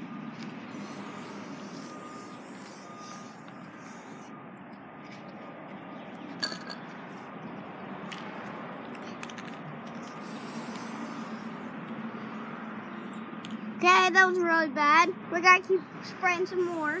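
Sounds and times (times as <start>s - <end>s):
spray can hissing: 0.7s - 4.3s, 10.1s - 11.7s, 16.6s - 17.0s.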